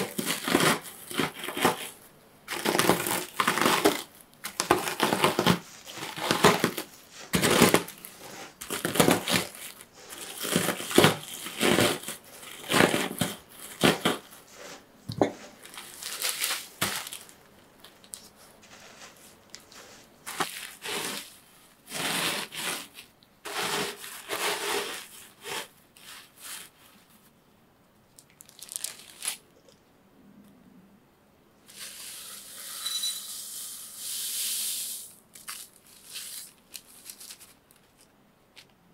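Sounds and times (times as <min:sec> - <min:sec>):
biscuits crunching in plastic bag: 0:00.0 - 0:14.4, 0:15.6 - 0:18.2, 0:28.3 - 0:29.7, 0:35.3 - 0:38.1.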